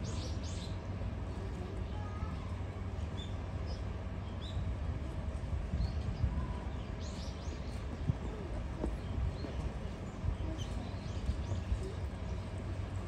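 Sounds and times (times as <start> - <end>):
small birds chirping: 0.0 - 0.9, 5.8 - 13.0
wind rumble on microphone: 4.4 - 13.0.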